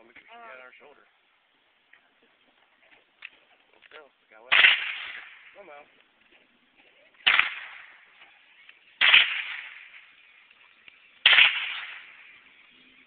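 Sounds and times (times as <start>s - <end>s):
rifle shots with echo: 4.5s - 5.8s, 7.2s - 10.3s, 11.2s - 13.0s.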